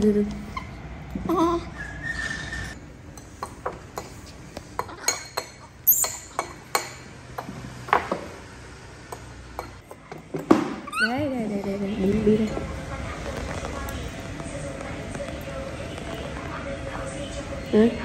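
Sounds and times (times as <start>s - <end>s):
metal spoon clinking on ceramic bowls: 3.1s - 7.5s, 9.1s - 9.9s.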